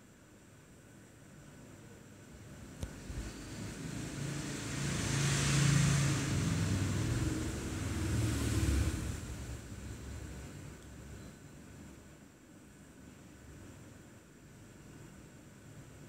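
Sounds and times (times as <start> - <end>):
passing motor traffic: 2.9 - 10.7.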